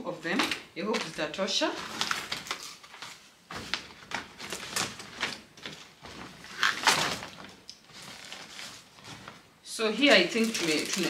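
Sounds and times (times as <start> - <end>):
packaging rustling and crinkling: 0.3 - 11.0.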